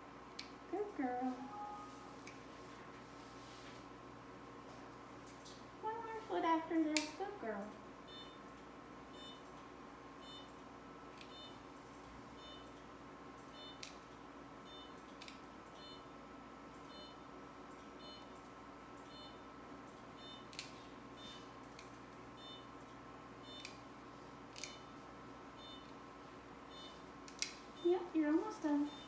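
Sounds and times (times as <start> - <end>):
faint steady hum: 0.0 - 29.0
short electronic beep: 1.4 - 2.2.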